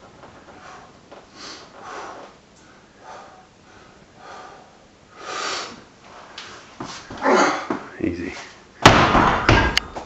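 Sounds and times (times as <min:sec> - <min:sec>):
man breathing forcefully: 0:00.5 - 0:05.9.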